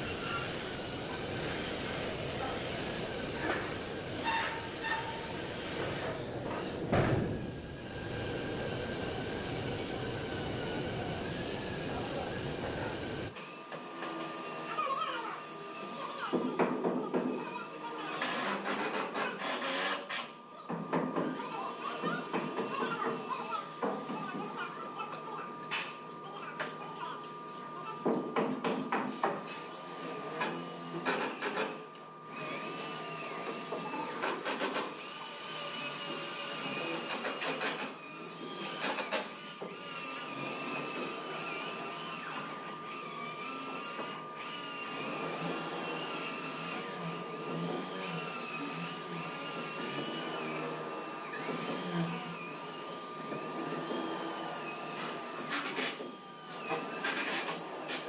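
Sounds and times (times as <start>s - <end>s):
steady high hum: 0.0s - 13.4s
power tools whirring: 0.0s - 58.0s.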